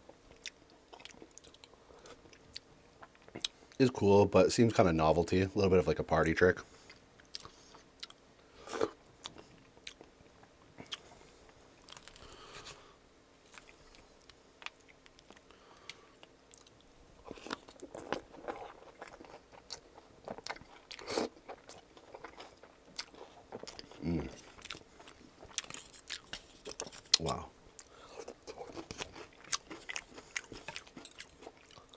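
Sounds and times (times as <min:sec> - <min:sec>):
crunchy chewing: 0:10.8 - 0:31.9.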